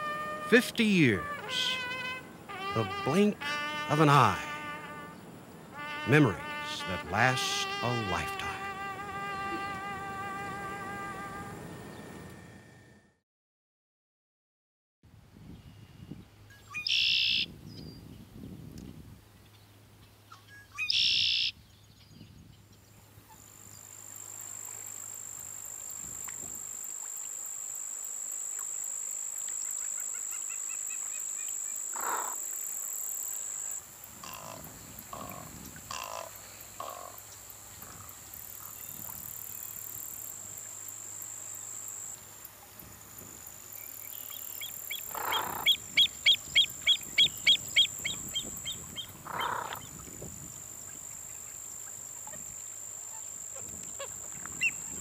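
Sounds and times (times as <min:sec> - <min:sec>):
high-pitched buzz: 0:00.0 - 0:13.0
sharp evenly spaced calls: 0:00.4 - 0:08.6, 0:16.7 - 0:17.5, 0:20.7 - 0:21.5, 0:29.5 - 0:42.2, 0:43.8 - 0:49.9
short animal calls: 0:31.9 - 0:32.4, 0:45.0 - 0:47.9, 0:49.2 - 0:49.9.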